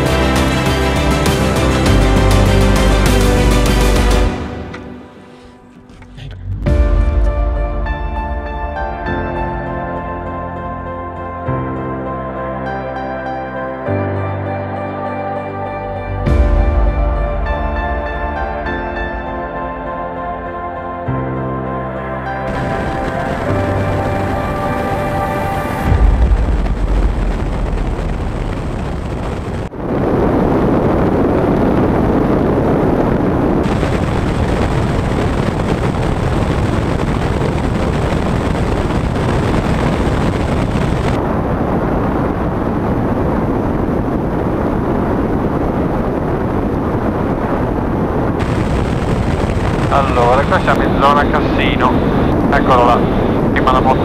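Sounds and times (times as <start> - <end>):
heavy low rumble: 0.0 - 12.5, 15.5 - 54.0
wind noise: 22.5 - 54.0.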